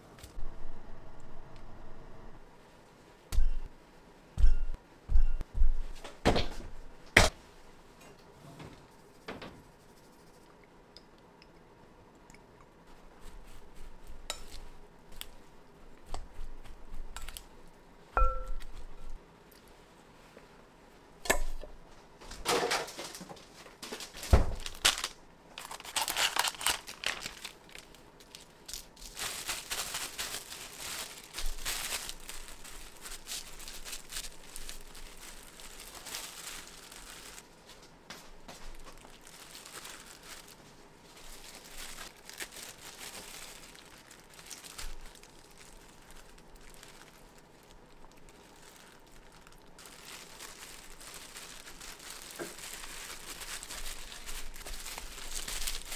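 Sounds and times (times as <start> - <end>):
packaging crinkling: 23.8 - 37.8, 38.5 - 55.9.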